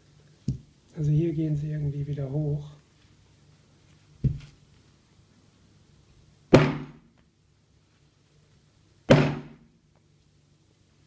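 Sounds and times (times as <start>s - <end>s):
hammer dull thump: 6.6s - 7.0s.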